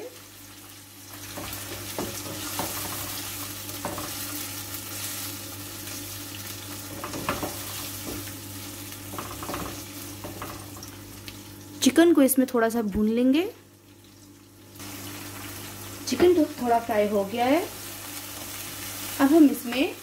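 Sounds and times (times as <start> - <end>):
chicken sizzling in hot oil: 0.0 - 12.0, 13.6 - 20.0
spatula scraping and knocking pan: 1.3 - 4.3, 6.9 - 8.3, 9.1 - 10.8.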